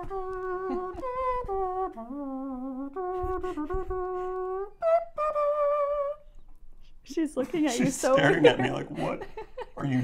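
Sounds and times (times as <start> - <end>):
person humming a tune: 0.0 - 6.2.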